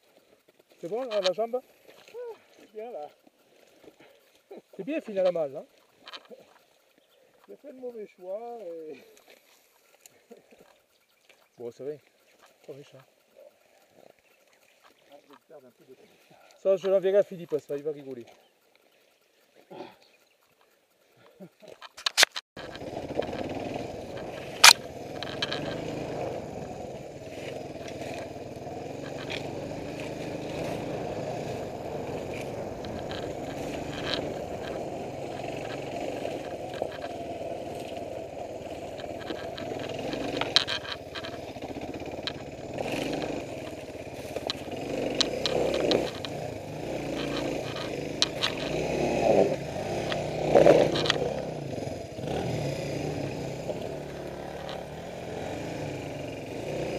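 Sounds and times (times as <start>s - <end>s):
motorcycle engine running: 0.0s - 56.9s
brush scraping: 21.8s - 49.0s
stones knocking against bike: 38.8s - 48.9s.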